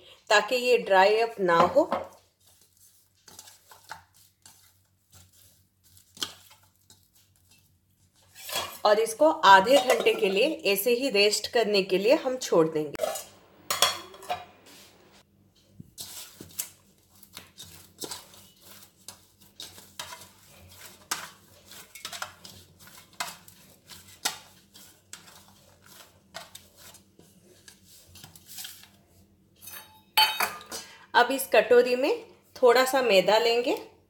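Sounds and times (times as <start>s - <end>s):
metal bowls clinking and scraping: 8.2s - 10.8s, 13.0s - 14.6s, 17.6s - 27.0s, 29.6s - 30.9s.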